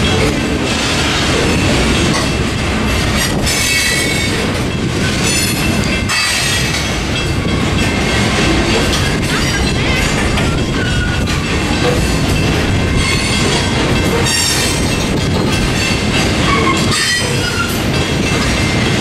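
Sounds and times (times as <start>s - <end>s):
train wheels rumbling and clacking: 0.0s - 19.0s
high wheel squeal: 16.5s - 17.7s.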